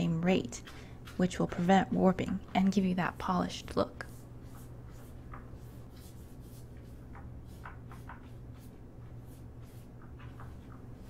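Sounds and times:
paintbrush strokes on paper: 0.0 - 11.0
steady low hum: 0.0 - 11.0.

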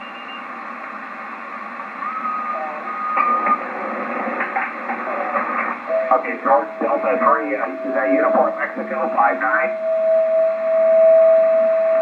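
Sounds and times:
radio band noise hiss: 0.0 - 9.8
heterodyne whistle: 2.0 - 3.6
garbled radio voices: 2.4 - 9.8.

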